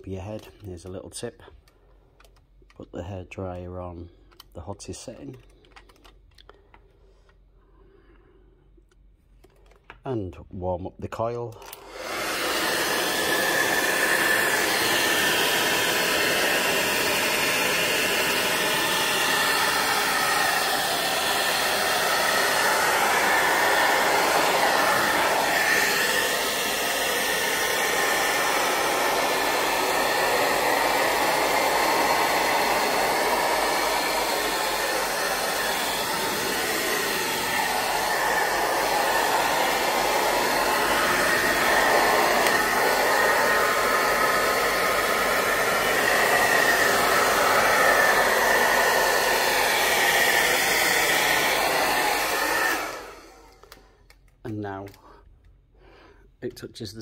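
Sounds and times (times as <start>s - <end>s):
hairdryer blowing air: 11.6s - 54.1s.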